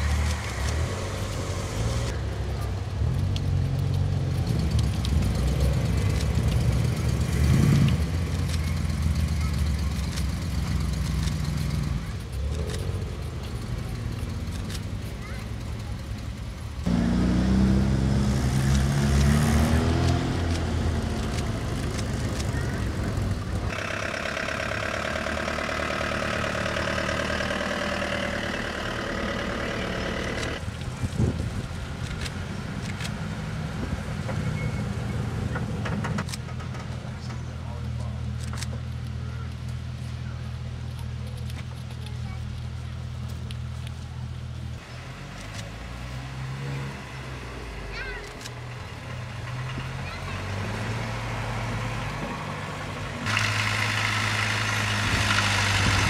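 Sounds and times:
car engine idling: 0.0s - 17.0s, 21.0s - 33.4s.

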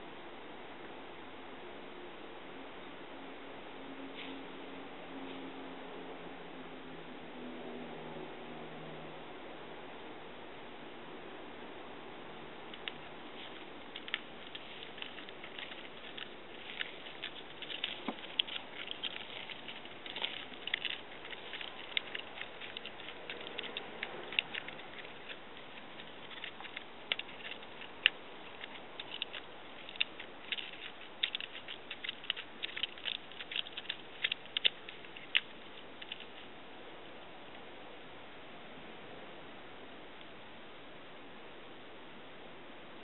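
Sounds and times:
cat scratching log bark: 12.7s - 36.5s.

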